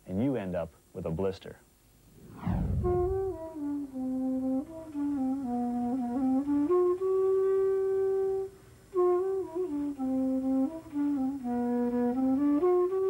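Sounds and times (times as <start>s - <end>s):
recorder-like flute melody: 2.8s - 13.0s.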